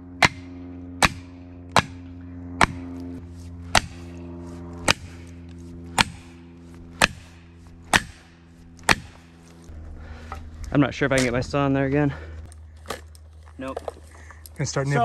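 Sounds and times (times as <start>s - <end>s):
low hum: 0.0s - 15.0s
axe striking felling wedges: 0.2s - 2.0s, 3.7s - 4.1s, 4.8s - 5.2s, 5.9s - 9.3s.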